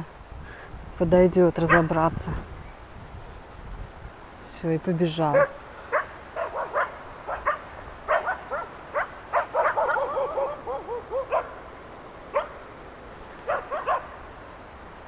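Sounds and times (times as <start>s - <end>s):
dogs barking: 1.6s - 2.0s, 5.3s - 11.6s, 12.3s - 12.6s, 13.4s - 14.3s.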